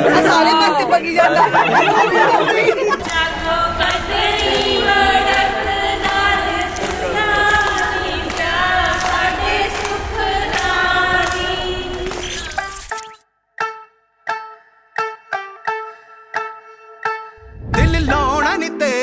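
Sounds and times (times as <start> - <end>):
choir singing held notes: 2.2 - 12.2.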